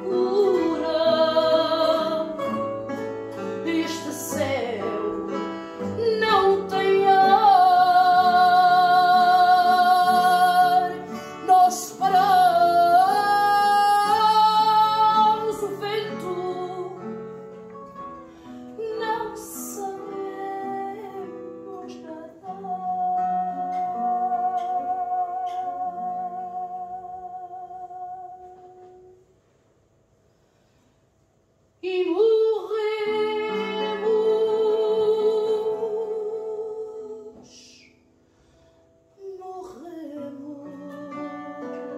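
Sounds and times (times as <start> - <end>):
woman singing with vibrato: 0.0 - 17.2, 18.8 - 29.2, 31.8 - 37.9, 39.2 - 41.9
acoustic guitar picking: 0.0 - 29.2, 39.4 - 41.9.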